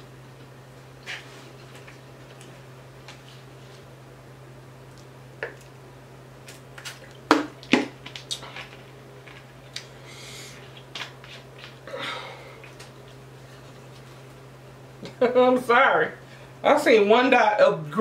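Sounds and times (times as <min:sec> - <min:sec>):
low electrical hum: 0:00.0 - 0:18.0
eating and handling noises: 0:00.3 - 0:03.9, 0:04.8 - 0:15.2.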